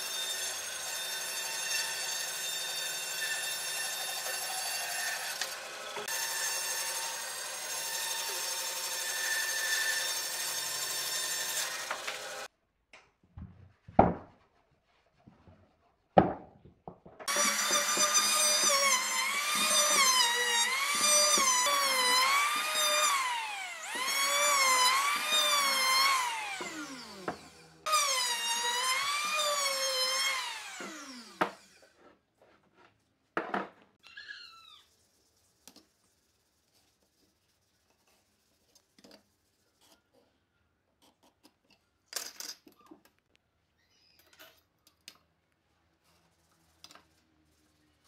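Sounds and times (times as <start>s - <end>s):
electric planer running: 17.3s - 31.4s.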